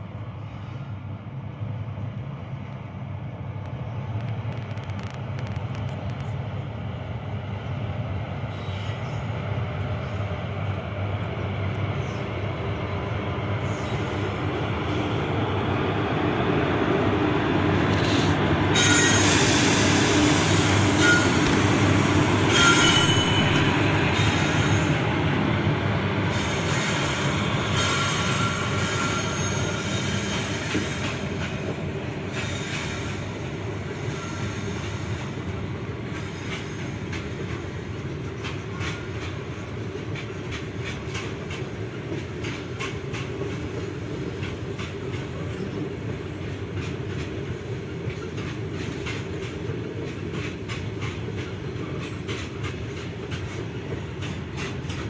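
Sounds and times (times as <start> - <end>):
goods train rumbling past: 0.0 - 55.0
train wheel squeal: 8.4 - 10.5, 11.9 - 12.6, 13.5 - 15.2, 17.9 - 25.2, 26.2 - 43.3.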